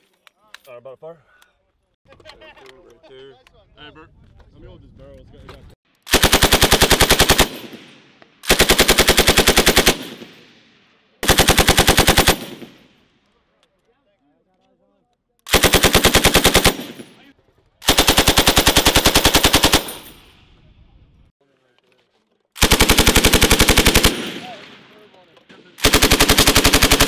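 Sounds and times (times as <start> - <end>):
machine gun firing bursts: 6.1 - 10.5, 11.2 - 13.0, 15.5 - 17.2, 17.8 - 20.3, 22.6 - 27.0.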